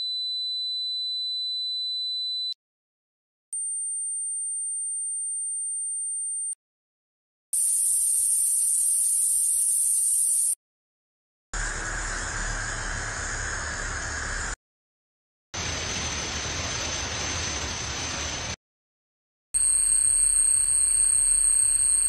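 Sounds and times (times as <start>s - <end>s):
high hiss-like buzz: 11.6s - 14.6s.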